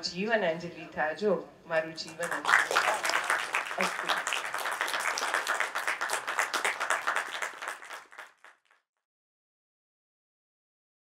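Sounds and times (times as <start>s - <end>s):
audience applause: 2.2s - 8.8s.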